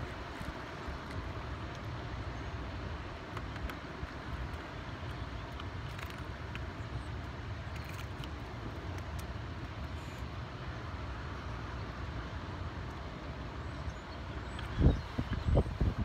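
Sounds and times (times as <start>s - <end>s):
wind buffeting microphone: 14.4s - 16.0s.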